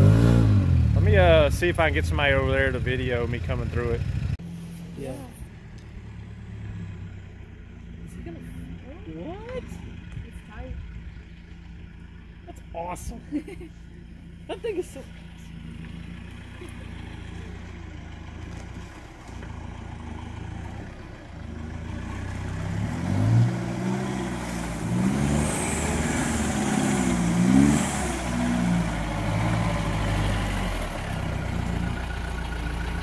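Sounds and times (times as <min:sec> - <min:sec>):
diesel engine revving: 0:00.0 - 0:33.0.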